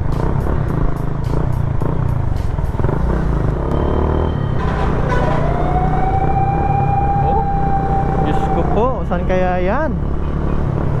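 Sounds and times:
motorcycle engine running: 0.0 - 4.4
rising tone: 5.2 - 9.1.

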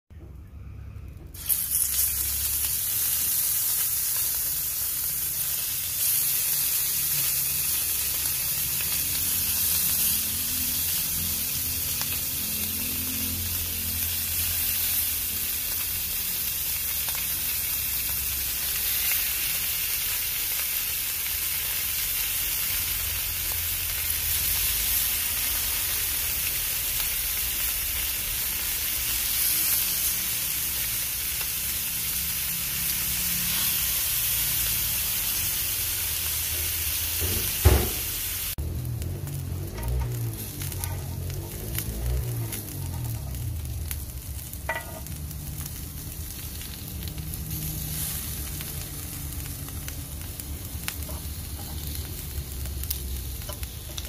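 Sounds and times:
fish sizzling on grill pan: 1.3 - 54.0.

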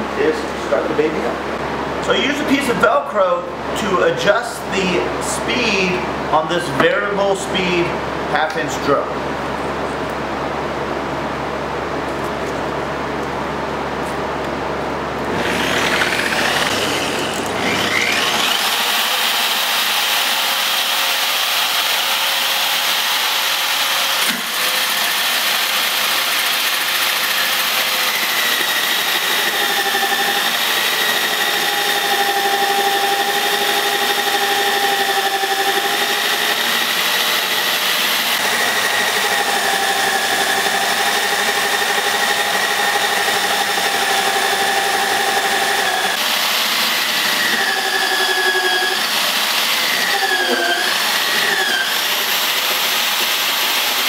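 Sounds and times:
drill whining through plywood: 15.3 - 54.0.

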